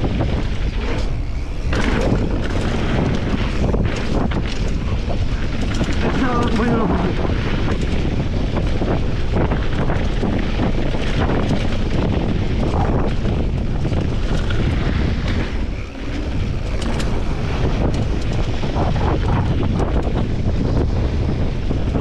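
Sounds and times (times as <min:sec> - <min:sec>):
bike rattling: 0:00.0 - 0:22.0
wind buffeting microphone: 0:00.0 - 0:22.0.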